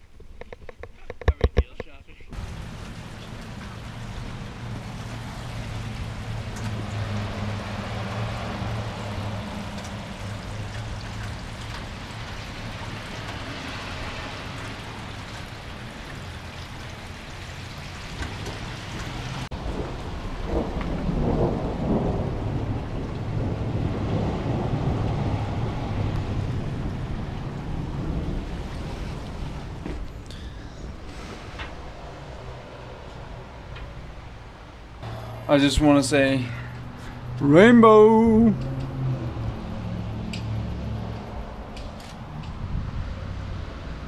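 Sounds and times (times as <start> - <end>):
rain hissing on pavement: 2.4 - 37.4
thunder rumbling: 18.3 - 37.3.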